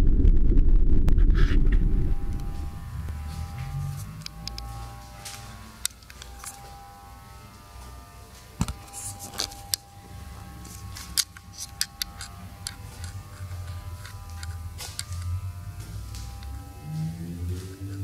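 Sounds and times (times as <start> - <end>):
faint hum with thin whine: 1.0 - 18.0
camera handling clicks: 11.0 - 13.4, 14.0 - 15.3.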